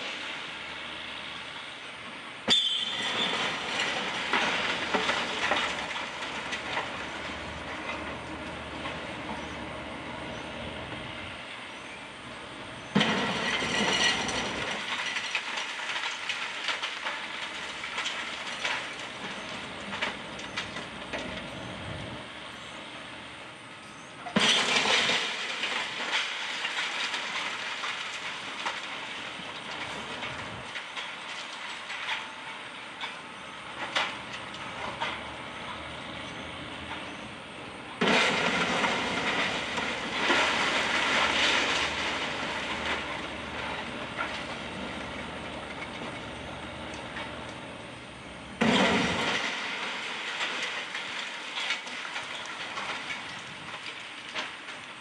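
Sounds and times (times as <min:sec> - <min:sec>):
bricks and rubble clattering down: 0:02.8 - 0:08.1, 0:12.9 - 0:20.9, 0:24.3 - 0:32.4, 0:38.0 - 0:47.4, 0:48.6 - 0:54.8.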